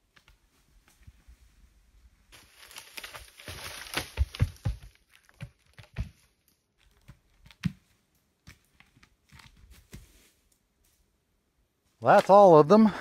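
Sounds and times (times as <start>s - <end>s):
logs thudding down a slope: 2.4s - 6.3s.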